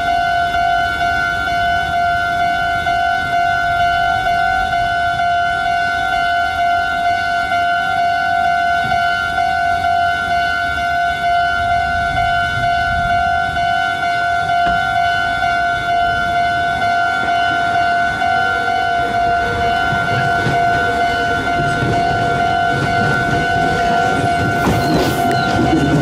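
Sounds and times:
electric train low rumble: 0.0 - 26.0
level-crossing alarm ringing: 0.0 - 26.0.

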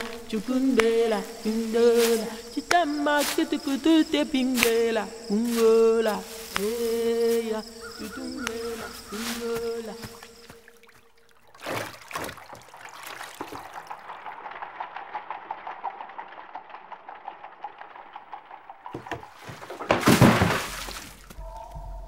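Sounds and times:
laundry scrubbed on a washboard: 18.4 - 21.4.

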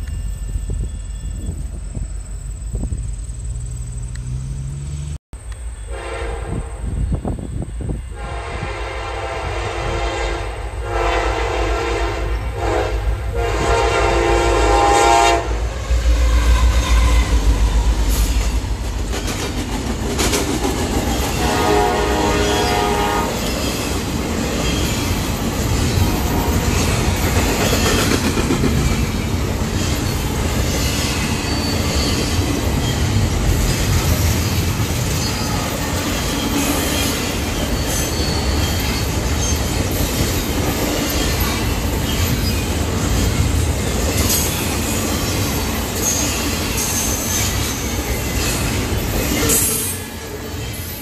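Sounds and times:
deep locomotive rumble: 0.0 - 38.6
locomotive air horn blasts: 5.8 - 7.0, 8.1 - 17.5, 21.4 - 23.5, 26.1 - 26.9
train wheels clattering on rails: 16.3 - 51.0.

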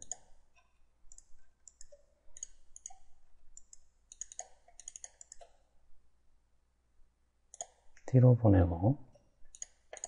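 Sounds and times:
computer mouse clicking: 0.0 - 5.6, 7.5 - 7.9, 9.5 - 10.0.

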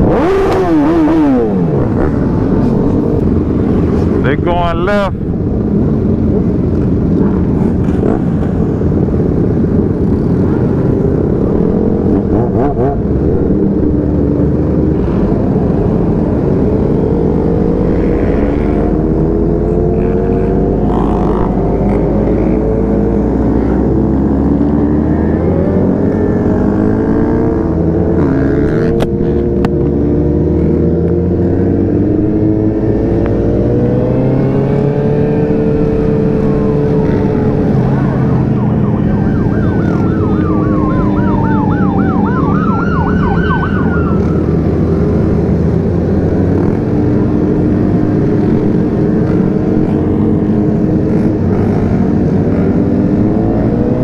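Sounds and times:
motorcycle engines running: 0.0 - 54.0
emergency vehicle siren: 36.1 - 45.2.

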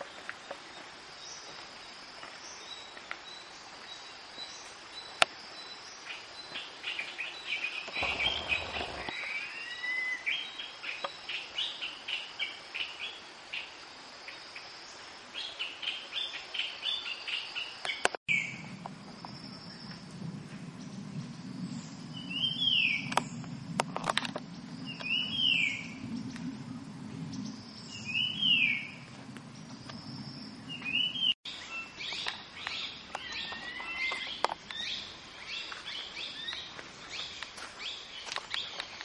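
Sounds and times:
birds chirping: 2.4 - 11.1
high insect drone: 8.0 - 9.2.

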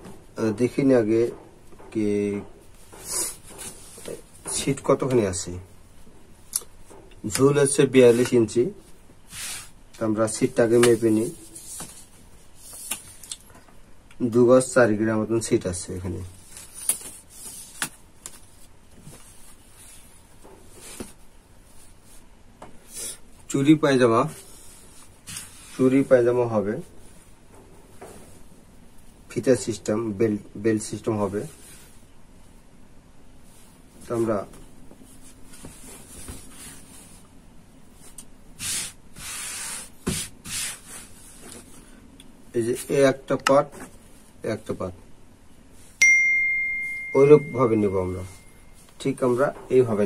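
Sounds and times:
cloth rustling: 33.4 - 43.0.

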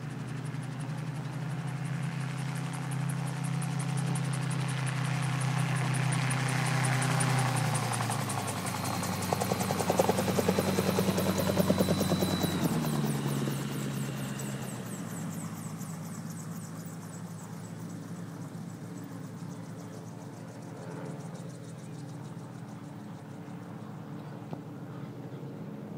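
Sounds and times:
autogyro engine and rotor chopping: 0.1 - 24.8.

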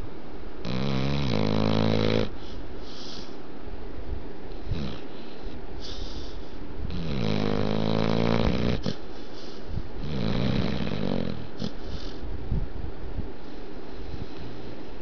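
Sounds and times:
dog snoring with a rattle: 0.6 - 2.4, 4.6 - 9.0, 10.0 - 12.2
dog hissing breaths: 2.2 - 3.4, 4.6 - 12.3.

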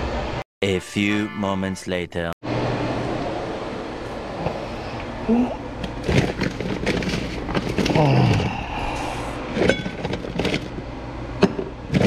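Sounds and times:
plastic bag rustling: 5.8 - 8.4, 9.5 - 10.8.

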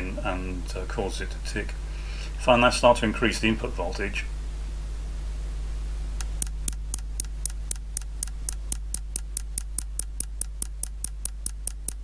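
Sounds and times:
steady low hum: 0.0 - 12.0
power supply ticking: 6.2 - 12.0.

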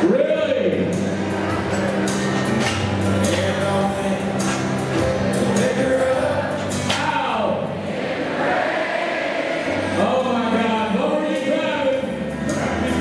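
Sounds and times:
song with singing: 2.6 - 10.1.

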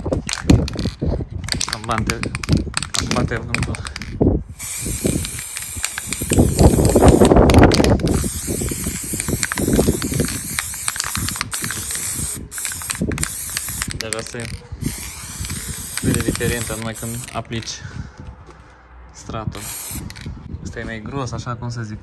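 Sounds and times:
wind buffeting microphone: 0.0 - 22.0
aerosol can spraying: 4.5 - 17.4, 19.6 - 20.3.

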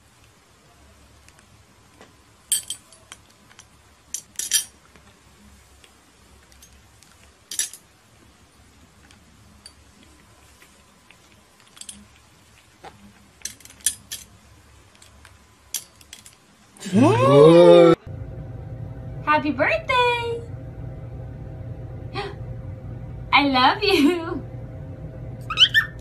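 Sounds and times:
glass ornament clinking: 2.5 - 3.2.

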